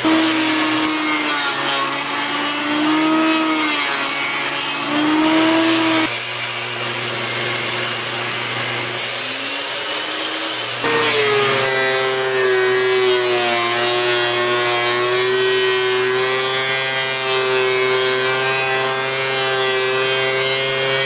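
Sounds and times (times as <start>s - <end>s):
electric saw cutting wood: 0.0s - 21.0s.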